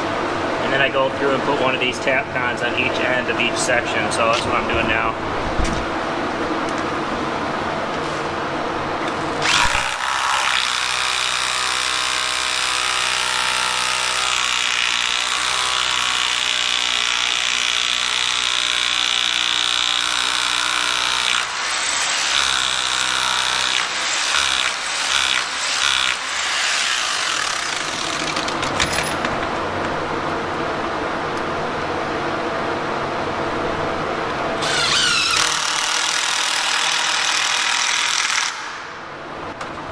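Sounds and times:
hammer drill boring into concrete: 9.4 - 28.3, 34.6 - 38.6.

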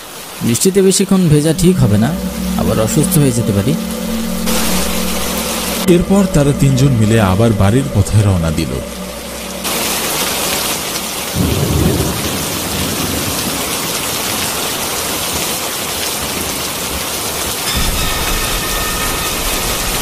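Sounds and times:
heavy rain: 0.0 - 20.0
thunder rumble: 1.2 - 14.3.

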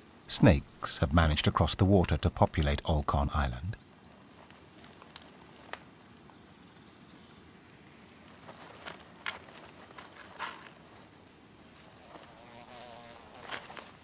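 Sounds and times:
steady outdoor hiss: 0.0 - 14.0
soft scrapes and rustles: 4.0 - 6.5, 8.0 - 14.0
fly buzzing: 4.1 - 14.0.

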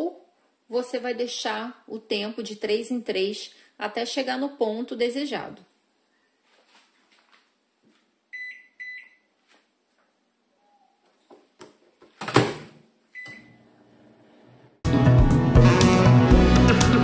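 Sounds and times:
microwave beeps: 8.3 - 9.3, 13.1 - 13.7
microwave oven humming: 13.2 - 14.8.

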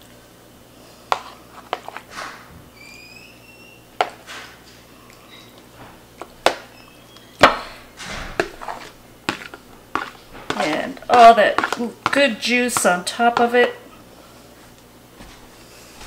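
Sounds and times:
soft wet food sounds: 8.4 - 14.9.

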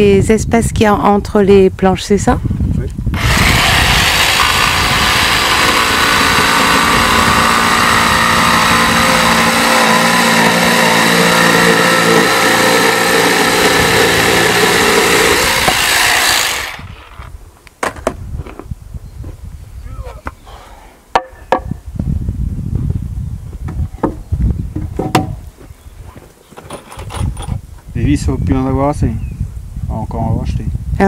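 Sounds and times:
jigsaw cutting wood: 3.2 - 17.2.

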